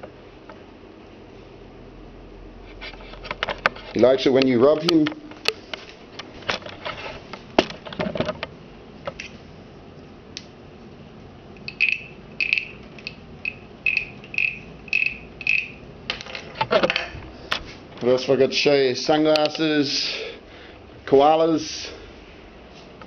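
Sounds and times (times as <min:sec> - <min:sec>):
handling clicks and knocks: 0:03.2 - 0:09.3, 0:16.1 - 0:18.1.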